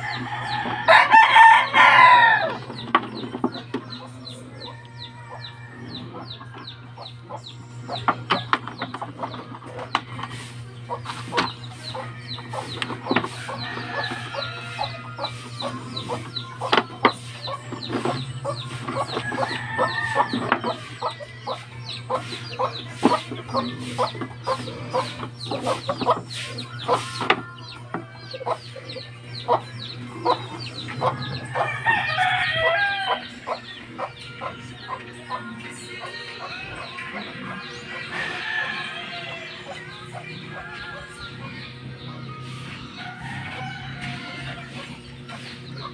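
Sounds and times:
rooster crowing: 0.0s - 2.7s, 13.3s - 15.4s, 19.0s - 21.1s, 31.0s - 33.6s, 38.1s - 39.9s, 43.0s - 45.0s
chickens clucking: 0.0s - 45.9s
steady low hum: 0.0s - 45.9s.

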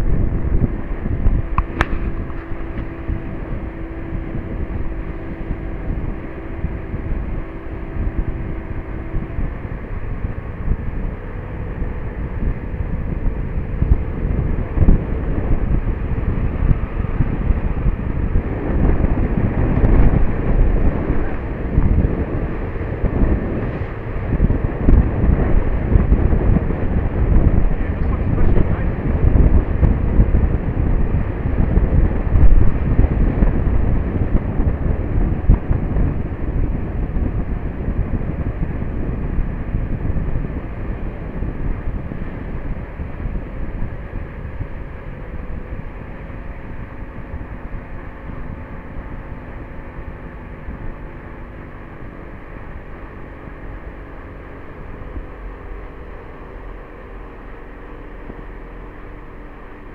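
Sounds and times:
boat engine drone: 0.0s - 59.9s
wind buffeting microphone: 0.0s - 59.9s.

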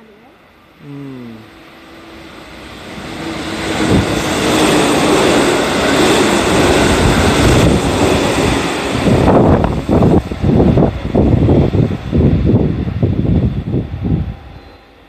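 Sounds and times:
held train tone: 0.0s - 15.0s
train wheels on rails: 1.8s - 15.0s
rushing air: 2.5s - 14.6s.

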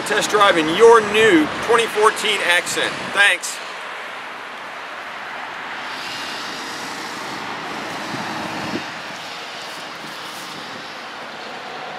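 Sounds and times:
cars passing on road: 0.0s - 11.9s.

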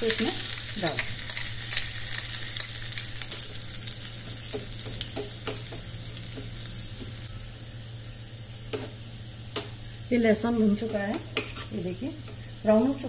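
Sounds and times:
garlic sizzling in oil: 0.0s - 13.0s
spoon scraping pan: 10.8s - 12.4s.

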